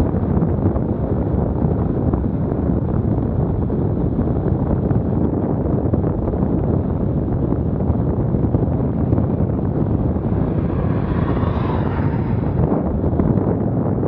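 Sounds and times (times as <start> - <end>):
heavy wind buffeting microphone: 0.0 - 14.0
vehicle passing: 8.8 - 14.0.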